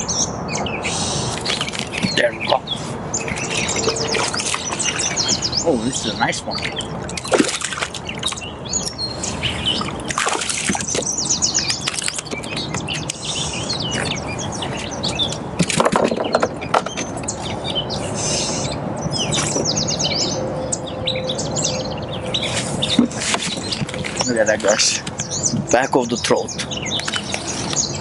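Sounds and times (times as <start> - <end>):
songbirds chirping: 0.0 - 28.0
water noise: 0.6 - 17.4
fish splashing at surface: 6.6 - 8.4, 9.8 - 11.1.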